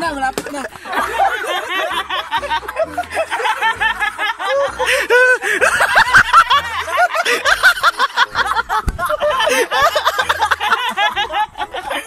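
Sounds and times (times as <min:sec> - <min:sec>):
young men laughing: 0:00.4 - 0:12.0.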